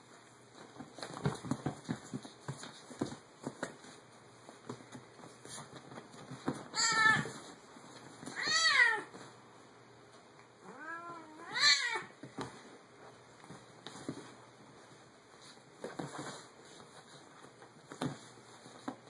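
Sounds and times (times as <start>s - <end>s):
faint scuffling clicks: 0.1s - 8.5s, 12.2s - 19.0s
cat meowing: 6.8s - 7.3s, 10.6s - 12.1s.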